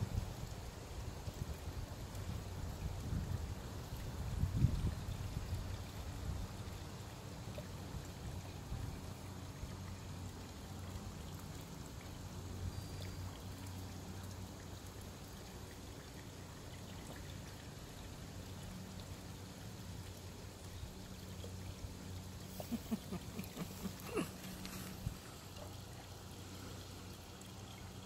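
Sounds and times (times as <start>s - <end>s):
water trickling and lapping: 0.1s - 28.0s
ducks splashing: 22.5s - 27.0s.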